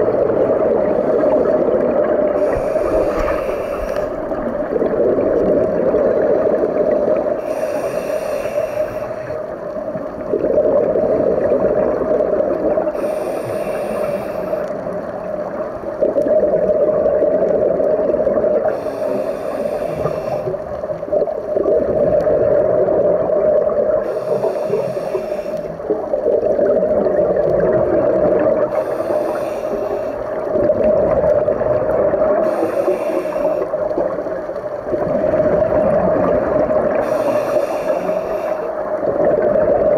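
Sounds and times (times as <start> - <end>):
bubbling exhaled air: 0.0 - 39.9
regulator hissing inhales: 2.4 - 4.5, 7.4 - 9.5, 12.9 - 14.7, 18.7 - 20.7, 24.0 - 25.8, 28.7 - 30.4, 32.4 - 33.8, 36.9 - 38.9.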